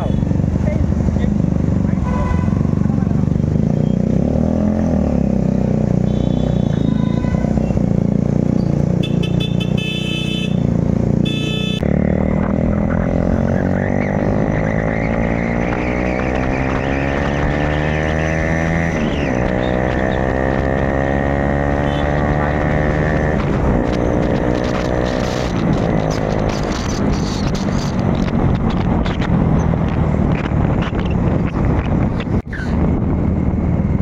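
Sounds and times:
motorcycle with loud exhaust: 0.0 - 34.0
town traffic: 0.0 - 34.0
vehicle horns honking: 2.0 - 2.8, 6.0 - 7.8, 9.0 - 11.8, 21.7 - 22.3.

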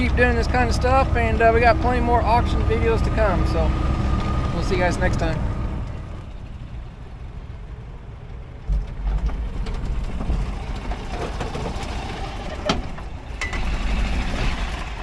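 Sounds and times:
golf cart motor under load: 8.5 - 15.0.

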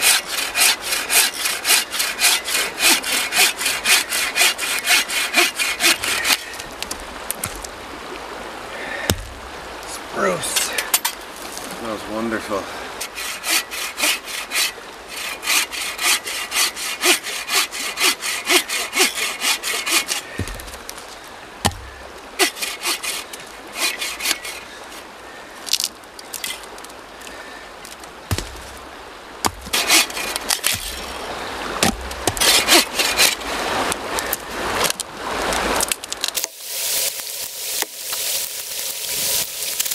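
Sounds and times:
hand saw cutting wood: 0.0 - 6.6, 13.0 - 20.7, 21.7 - 24.7, 29.4 - 31.2, 32.3 - 33.5
dull knocks: 9.1 - 9.5, 20.4 - 20.8, 28.3 - 28.8.

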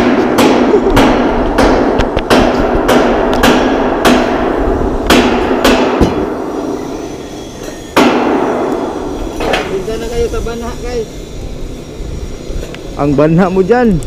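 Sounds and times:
hammer blows ringing: 0.0 - 10.2.

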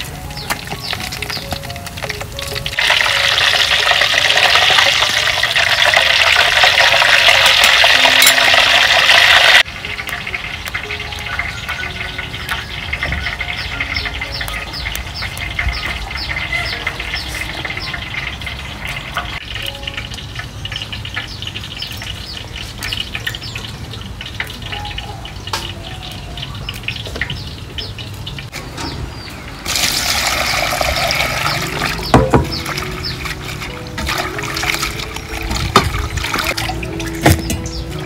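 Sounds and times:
small birds chirping: 0.0 - 2.7, 10.7 - 34.0, 36.4 - 38.0
tap water gushing into metal bowl: 2.8 - 9.7, 29.6 - 37.4
knock against metal bowl: 32.1 - 32.6.

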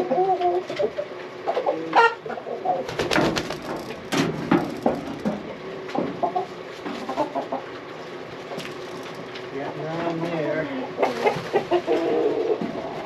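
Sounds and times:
chickens clucking: 0.0 - 9.4, 10.7 - 13.0
rustling and knocks: 3.0 - 7.1.

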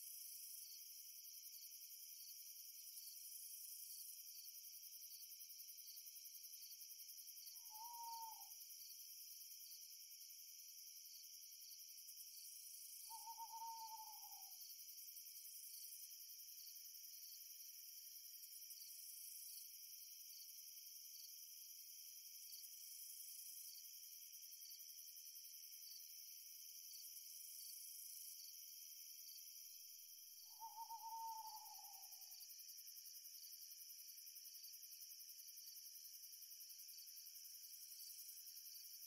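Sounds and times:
crickets chirping: 0.0 - 39.0
owl hooting: 7.7 - 8.5, 13.1 - 14.5, 30.5 - 32.3.

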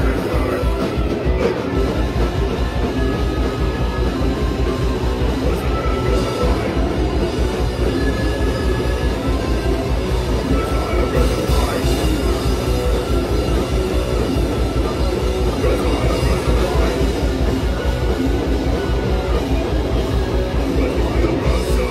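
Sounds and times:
vocals into a microphone: 0.0 - 12.8, 15.0 - 17.8, 20.5 - 21.9
live heavy rock band: 0.0 - 21.9.

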